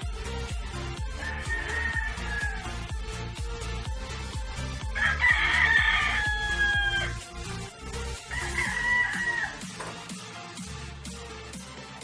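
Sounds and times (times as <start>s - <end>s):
background music with beat: 0.0s - 12.0s
rooster crowing: 1.1s - 2.8s, 5.0s - 7.2s, 8.2s - 9.9s.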